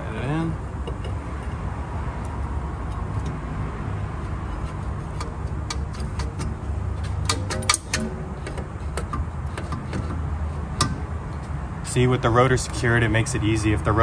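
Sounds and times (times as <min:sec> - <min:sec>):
metal clinks of brake bracket: 0:00.7 - 0:01.6, 0:04.5 - 0:11.5.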